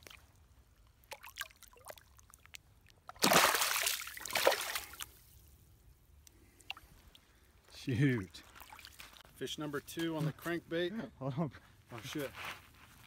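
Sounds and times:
water dripping and trickling: 0:00.0 - 0:05.2, 0:06.2 - 0:07.3, 0:08.2 - 0:09.3
fish splashing in water: 0:01.0 - 0:05.1.

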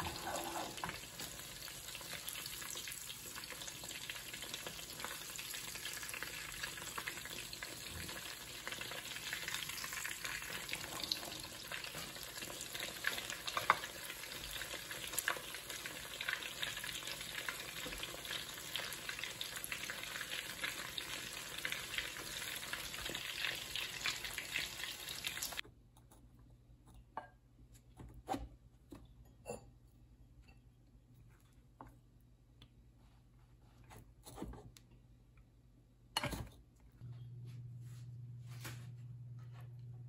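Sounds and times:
food sizzling in hot oil: 0:00.0 - 0:25.6.

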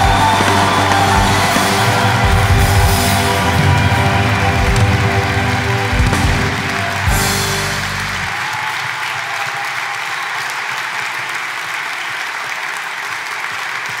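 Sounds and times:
hymn final chord: 0:00.0 - 0:08.3
audience applauding: 0:00.0 - 0:14.0.

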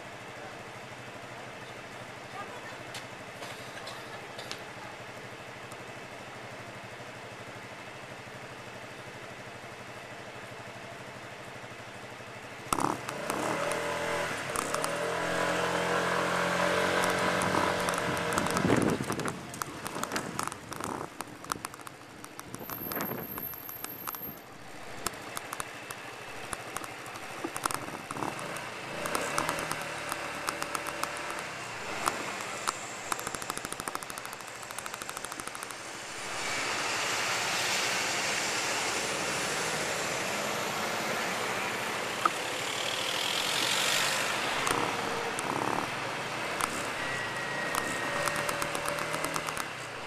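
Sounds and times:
rapid patter of sharp clicks: 0:12.7 - 0:37.1, 0:42.1 - 0:50.0
cars passing: 0:12.7 - 0:50.0.

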